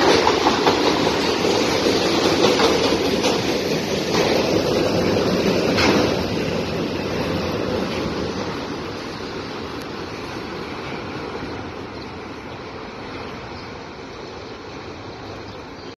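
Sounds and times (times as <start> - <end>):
train wheels rolling on rails: 0.0 - 15.9.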